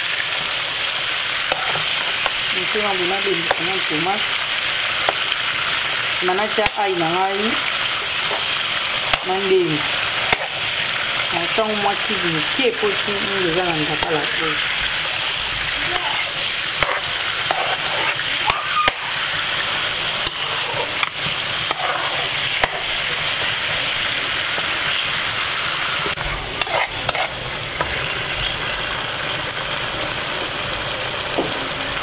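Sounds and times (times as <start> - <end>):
onions sizzling in oil: 0.0 - 32.0
spoon scraping and knocking pan: 1.4 - 3.9, 8.2 - 9.4, 10.2 - 10.6, 12.8 - 25.2, 26.0 - 28.1.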